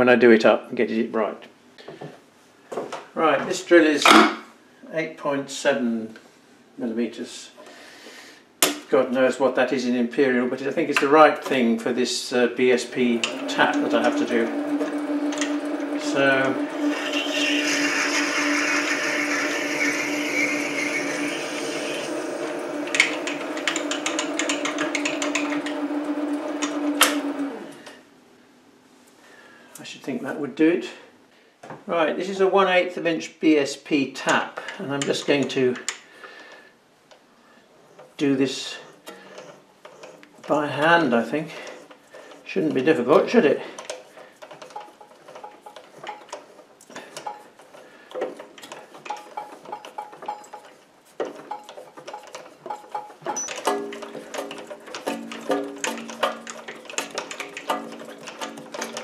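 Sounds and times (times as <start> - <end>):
lathe motor humming: 12.7 - 27.8, 39.1 - 59.0
drill cutting clicks: 13.0 - 27.8, 48.1 - 59.0.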